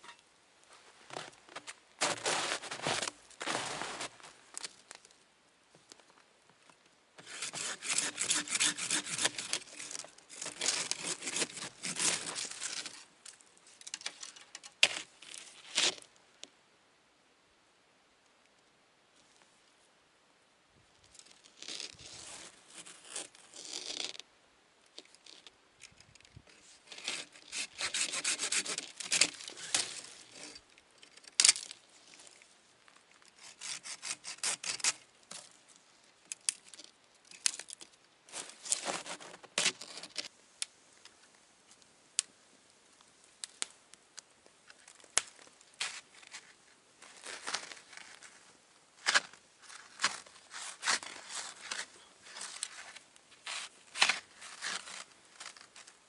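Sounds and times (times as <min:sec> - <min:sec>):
saw cutting wood: 0:07.2 - 0:09.6, 0:27.1 - 0:29.3.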